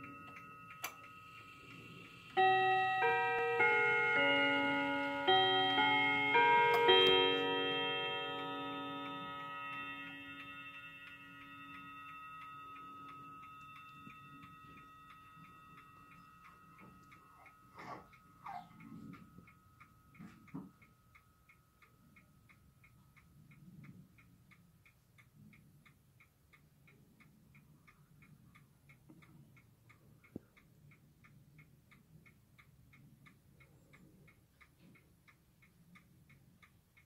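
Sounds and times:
clock chiming: 0.0 - 24.7
clock ticking: 0.0 - 37.0.

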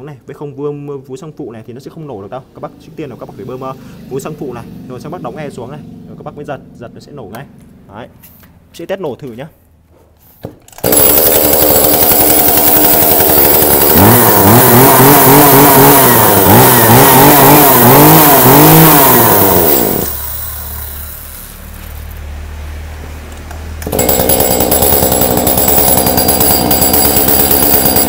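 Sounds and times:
chainsaw revving and idling: 10.8 - 21.6, 23.8 - 28.0.

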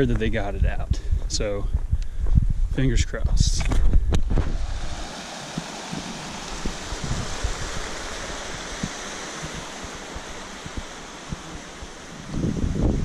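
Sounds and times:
footsteps on dirt trail: 0.0 - 2.7, 3.3 - 12.9
stream trickling over rocks: 4.4 - 13.0.

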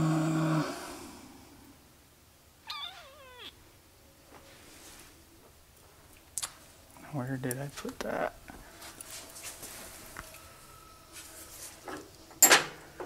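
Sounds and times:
animal call: 2.6 - 3.6.

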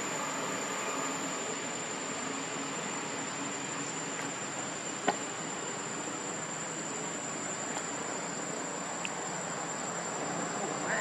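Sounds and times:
background hiss: 0.0 - 11.0
high-pitched insect drone: 0.0 - 11.0.

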